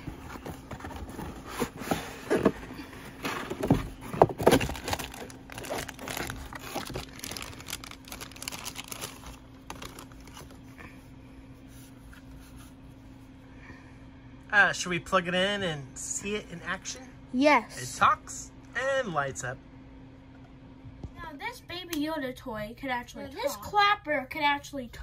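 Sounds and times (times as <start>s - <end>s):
cardboard box handled and opened: 0.0s - 10.6s
plastic bag crinkling: 4.3s - 10.6s.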